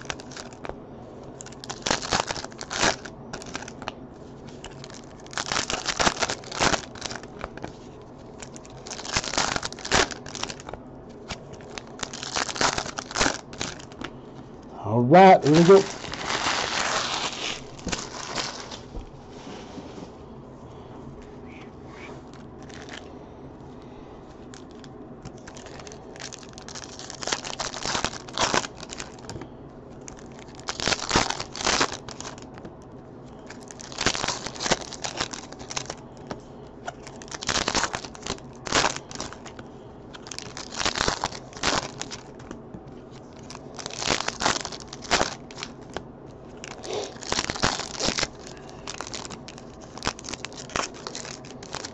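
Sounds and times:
foil card wrappers tearing: 0:00.0 - 0:00.7, 0:01.4 - 0:03.9, 0:04.5 - 0:14.1, 0:15.2 - 0:18.9, 0:22.3 - 0:23.1, 0:24.4 - 0:29.4, 0:30.0 - 0:32.6, 0:33.4 - 0:39.6, 0:40.2 - 0:51.9
cards shuffling: 0:15.2 - 0:19.0.

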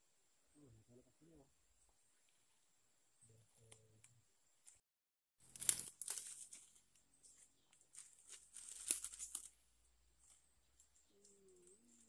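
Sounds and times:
leaves and brush rustling: 0:05.4 - 0:09.6.

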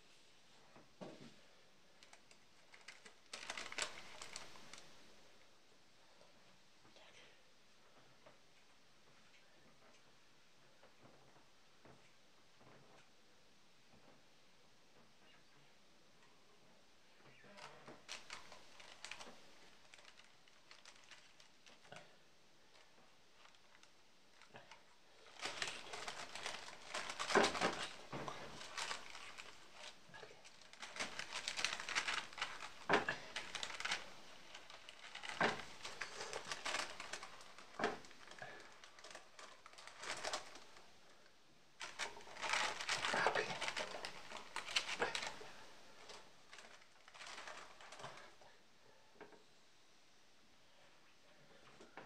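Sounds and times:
paper rustling and crinkling: 0:02.0 - 0:05.1, 0:17.5 - 0:22.1, 0:22.7 - 0:40.9, 0:41.8 - 0:48.4.

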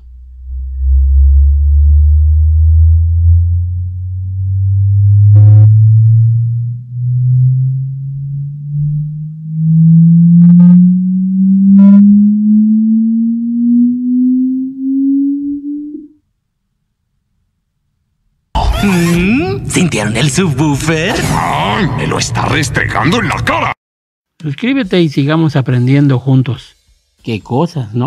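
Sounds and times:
low tone gliding upward: 0:00.0 - 0:16.2
brief higher-pitched tones: 0:06.9 - 0:16.2.

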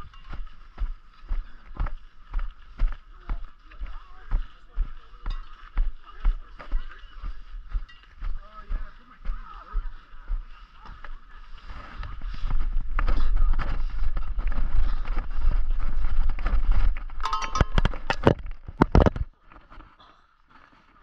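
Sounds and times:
cowbell ringing: 0:07.7 - 0:08.2, 0:17.2 - 0:18.1
rope rubbing on microphone: 0:11.2 - 0:17.2.

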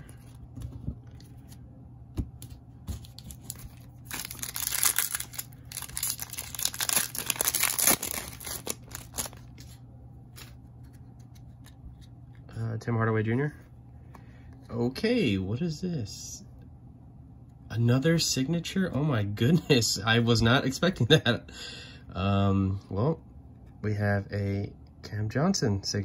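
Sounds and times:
foil wrapper tearing and crinkling: 0:03.0 - 0:09.8.

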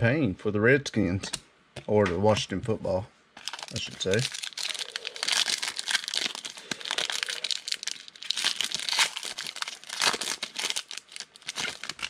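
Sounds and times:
foil wrapper tearing and crinkling: 0:03.4 - 0:12.0.

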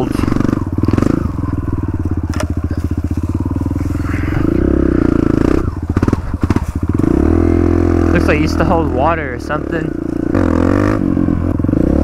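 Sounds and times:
dirt bike engine idling: 0:00.0 - 0:12.0
knocks and clatters: 0:02.2 - 0:03.2.

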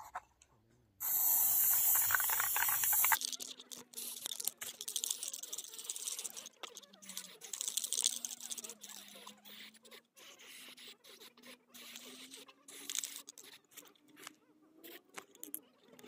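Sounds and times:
spray paint can hissing: 0:01.0 - 0:03.4, 0:04.0 - 0:06.4, 0:07.2 - 0:08.6, 0:12.7 - 0:13.4
clicks and taps of can handling: 0:01.6 - 0:03.2.

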